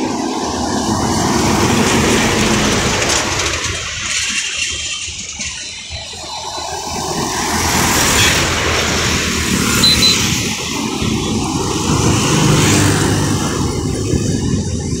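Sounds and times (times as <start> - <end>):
road traffic passing: 0.0 - 15.0
truck passing: 0.0 - 15.0
short high beeps: 9.7 - 10.4.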